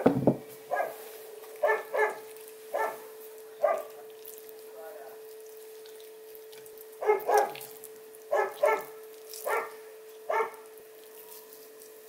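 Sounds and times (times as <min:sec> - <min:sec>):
steady electrical hum: 0:00.0 - 0:12.0
dog barking: 0:00.7 - 0:01.0, 0:01.6 - 0:04.0, 0:07.0 - 0:07.6, 0:08.3 - 0:10.7.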